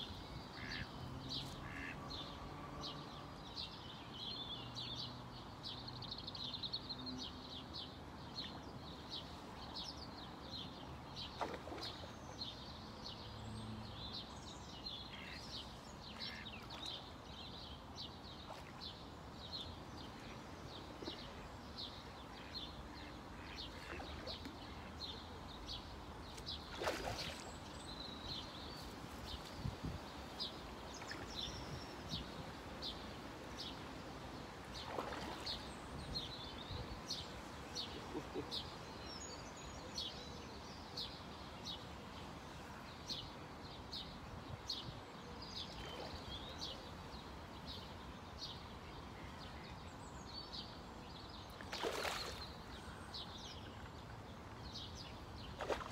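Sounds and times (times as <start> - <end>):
small birds chirping: 0.0 - 0.8, 1.4 - 1.9, 15.0 - 17.1
open-air background hiss: 0.0 - 55.9.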